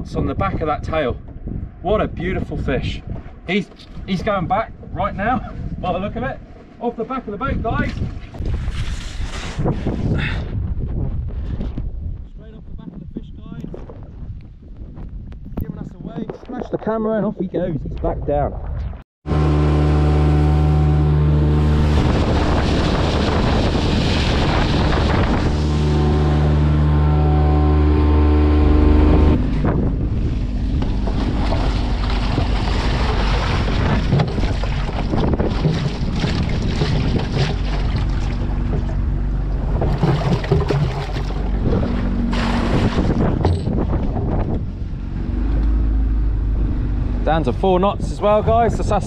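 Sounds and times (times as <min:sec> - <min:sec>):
boat engine running: 0:19.2 - 0:49.0
water rushing past hull: 0:19.3 - 0:47.6
water sloshing and splashing: 0:21.5 - 0:26.8, 0:29.3 - 0:44.6.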